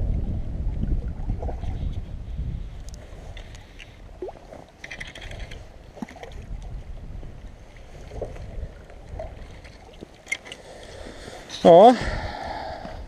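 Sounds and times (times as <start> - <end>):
wind on microphone: 0.0 - 10.1, 11.9 - 13.0.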